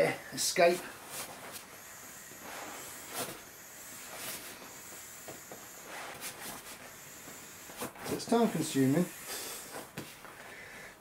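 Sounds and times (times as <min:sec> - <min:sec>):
air hissing from valve: 0:01.7 - 0:09.9.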